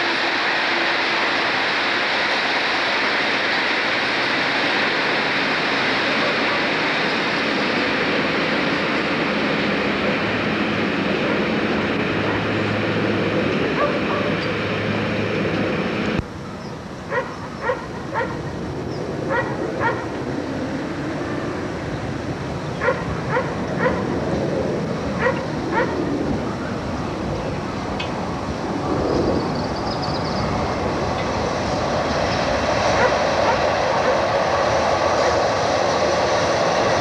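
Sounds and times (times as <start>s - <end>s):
passenger train rushing past: 0.0s - 37.0s
dog barking: 13.8s - 14.3s, 17.1s - 18.4s, 19.3s - 20.1s, 22.8s - 24.0s, 25.2s - 26.0s, 33.0s - 34.2s.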